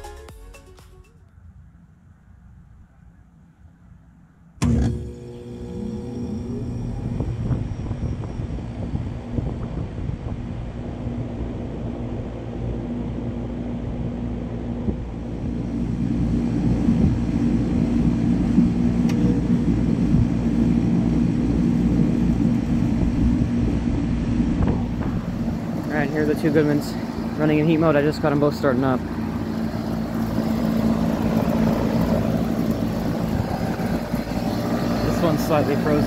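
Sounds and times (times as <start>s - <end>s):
fan rumble: 4.1s - 36.0s
heat pump compressor hum: 4.6s - 36.0s.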